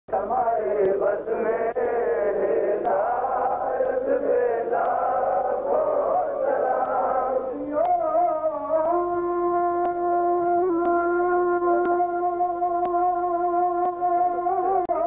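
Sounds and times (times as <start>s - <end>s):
men chanting in unison: 0.1s - 7.8s.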